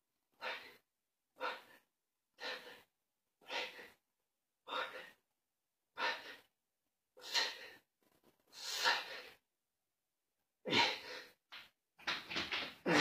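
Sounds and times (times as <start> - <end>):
man breathing heavily: 0.3 - 0.8, 1.4 - 4.0, 4.6 - 5.3, 5.9 - 6.5, 7.2 - 7.9, 8.5 - 9.4.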